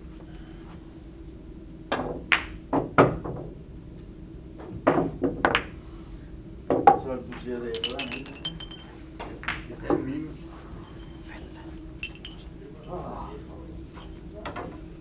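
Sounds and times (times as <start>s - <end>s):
billiard balls clicking and knocking: 7.7s - 9.7s, 12.0s - 12.5s.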